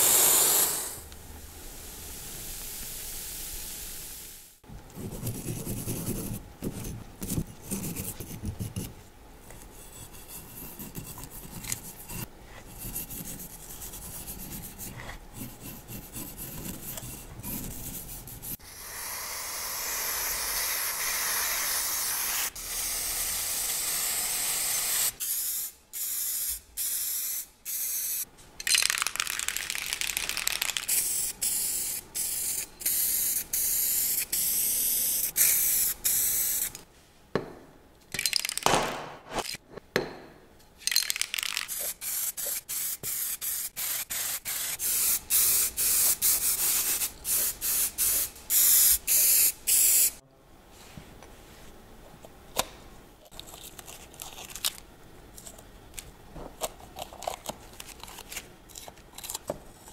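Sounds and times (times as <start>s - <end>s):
aerosol spray cans hissing: 0.0s - 1.0s, 41.1s - 50.2s.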